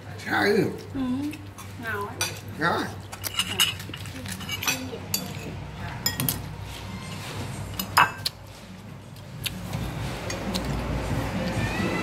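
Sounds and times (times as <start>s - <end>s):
spoons clinking on ceramic plates: 3.1s - 6.4s, 7.7s - 8.3s.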